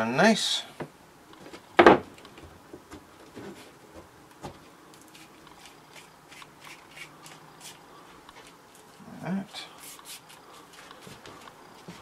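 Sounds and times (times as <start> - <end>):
tape rubbing on plastic pipe: 5.1 - 7.8, 9.8 - 10.4.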